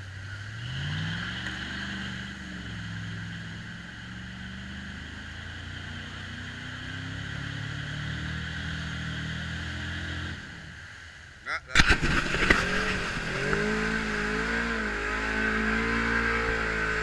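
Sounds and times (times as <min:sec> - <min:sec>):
engine revving: 0:00.0 - 0:10.8, 0:11.8 - 0:17.0
wheels spinning in mud: 0:11.8 - 0:17.0.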